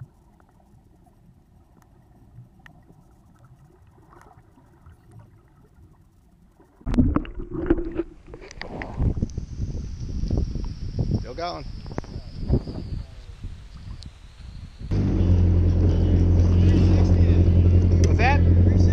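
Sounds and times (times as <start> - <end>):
brief hum: 14.8 - 18.9
loud rough noise: 14.9 - 18.9.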